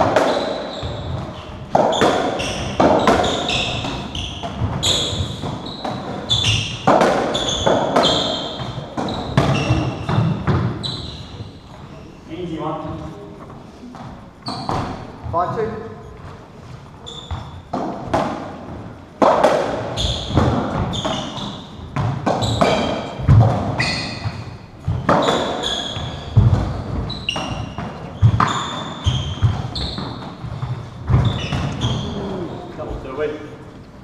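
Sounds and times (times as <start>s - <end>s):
ball knocking on rackets and walls: 0.0s - 10.8s, 17.3s - 31.8s
trainers squeaking on wooden floor: 0.0s - 17.9s, 19.7s - 33.4s.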